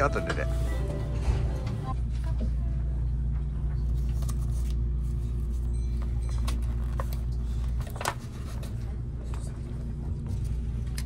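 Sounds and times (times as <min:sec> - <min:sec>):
train car rumble: 0:00.0 - 0:03.8
faint hum: 0:00.0 - 0:11.0.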